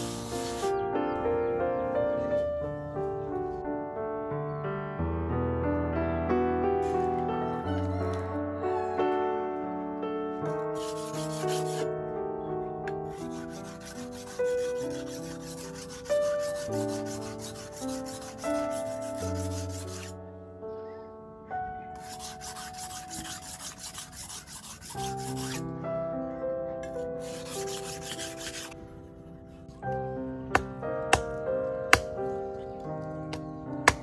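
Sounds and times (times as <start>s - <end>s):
background piano music: 0.0s - 34.0s
knife scraping on sharpening block: 10.8s - 11.9s, 13.3s - 20.1s, 22.0s - 25.6s, 27.2s - 28.8s.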